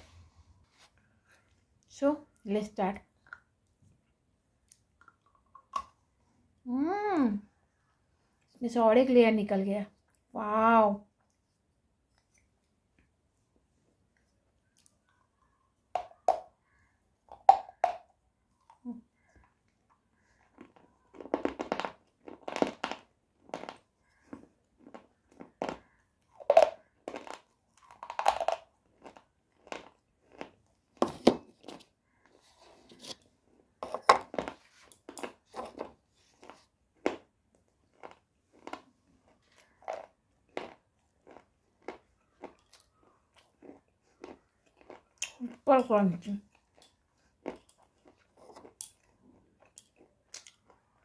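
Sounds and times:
crunching hard bar: 20.6s - 31.7s.

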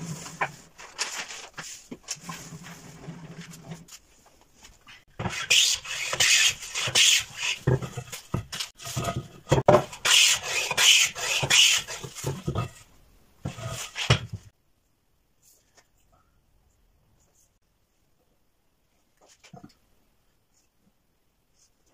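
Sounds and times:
hand plane shaving wood: 5.2s - 7.6s, 10.1s - 12.1s.

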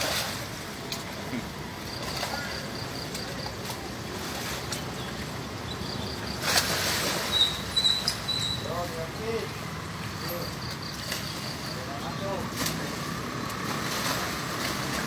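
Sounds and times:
splashing in muddy water: 0.0s - 8.7s, 12.4s - 15.0s
steady background noise: 0.0s - 15.0s.

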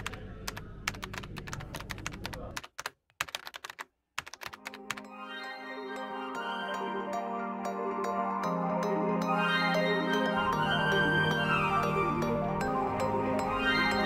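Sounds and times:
keyboard typing clicks: 0.0s - 5.1s
soft background music: 4.5s - 14.0s.

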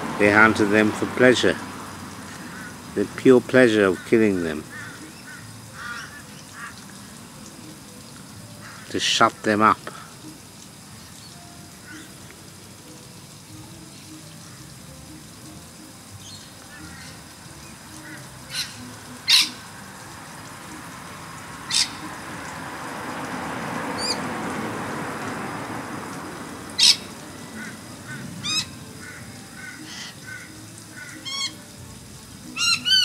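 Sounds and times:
bird calls: 3.9s - 6.9s, 11.0s - 12.2s, 16.2s - 19.7s, 21.7s - 22.2s, 24.0s - 24.3s, 26.8s - 31.6s, 32.6s - 33.0s.

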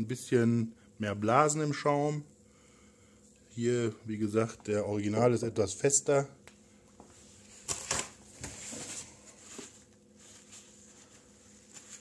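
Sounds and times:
faint steady hum: 0.0s - 12.0s
rustling and handling noises: 6.9s - 12.0s.

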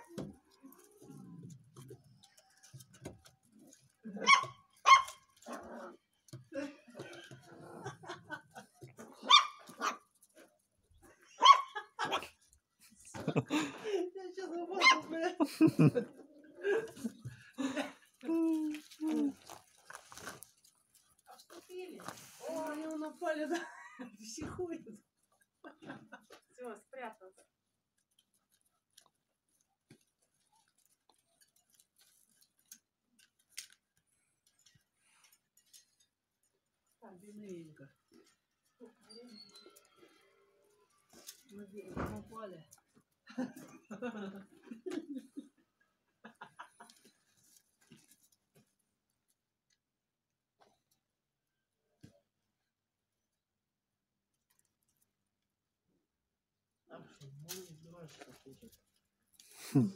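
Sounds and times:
puppies barking: 4.2s - 5.2s, 9.3s - 10.0s, 11.4s - 11.8s.

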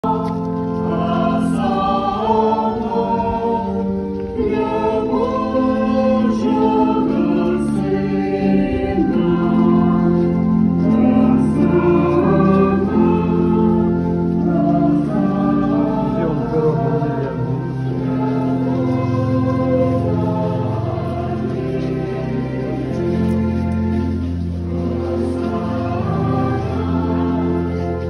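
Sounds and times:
choir singing: 0.0s - 28.0s.

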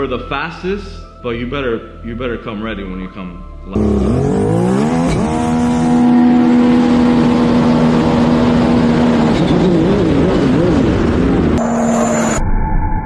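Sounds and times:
jet ski engine revving: 3.8s - 11.6s.

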